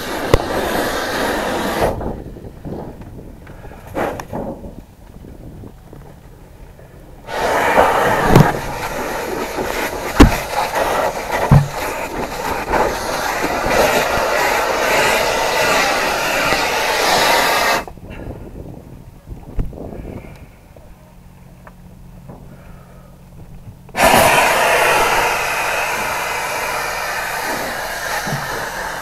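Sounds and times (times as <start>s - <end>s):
fire hose water hissing: 0.0s - 2.1s, 7.2s - 18.0s, 23.9s - 29.0s.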